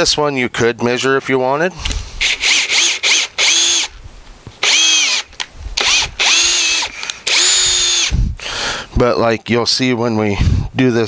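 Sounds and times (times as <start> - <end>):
cordless drill whining: 1.9 - 4.0, 4.6 - 8.2.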